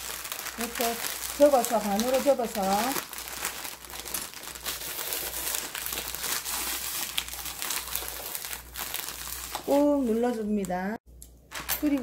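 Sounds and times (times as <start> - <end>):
plastic bag crinkling: 0.0 - 10.8.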